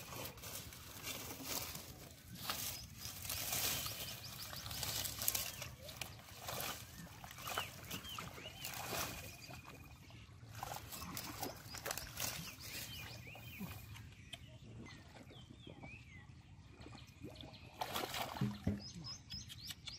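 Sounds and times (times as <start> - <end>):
water plants pulled from mud: 0.0 - 14.0
bird chirping: 2.3 - 17.8, 18.6 - 19.9.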